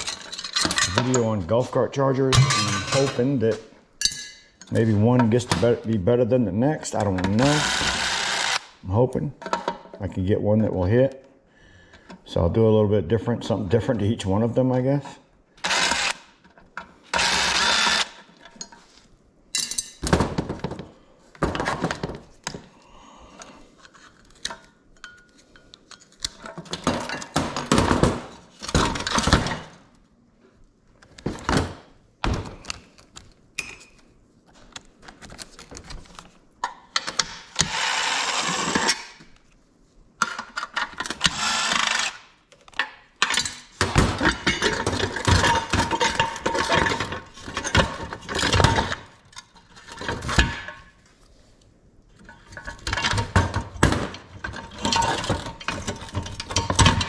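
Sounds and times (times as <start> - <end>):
metal clatter: 2.3 - 4.7
power tool bursts: 7.4 - 8.8, 15.6 - 16.2, 17.1 - 18.2, 37.6 - 39.0, 41.2 - 42.2.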